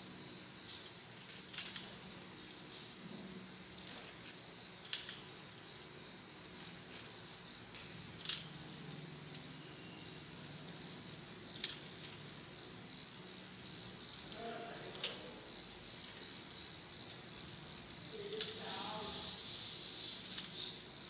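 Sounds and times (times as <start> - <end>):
toy motor whirring: 0.0 - 3.0, 3.6 - 21.0
toy mechanism clicks on tile: 1.5 - 2.6, 4.8 - 5.3, 7.7 - 8.7, 11.5 - 12.2, 14.1 - 20.9.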